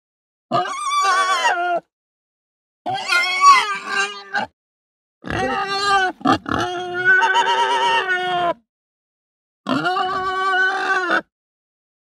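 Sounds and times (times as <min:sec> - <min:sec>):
pig squealing: 0:00.5 - 0:01.9, 0:02.9 - 0:04.5, 0:05.2 - 0:08.6, 0:09.6 - 0:11.3.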